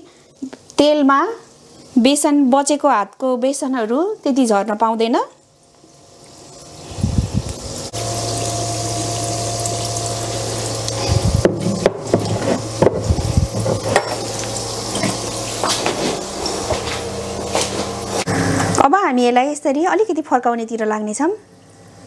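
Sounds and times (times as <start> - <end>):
patties sizzling in hot oil: 0.4 - 18.3
steady low hum: 6.2 - 19.4.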